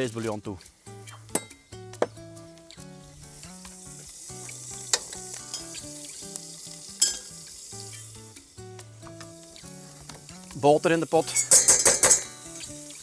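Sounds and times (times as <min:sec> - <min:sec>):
sauce sizzling in pan: 0:00.6 - 0:13.0
utensil knocking on pan: 0:11.4 - 0:12.4.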